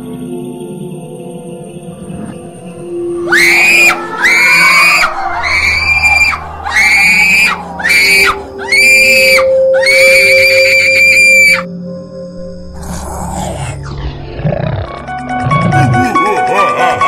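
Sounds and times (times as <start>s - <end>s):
faint droning music: 0.0s - 15.2s
shrill high-pitched screams: 3.2s - 11.7s.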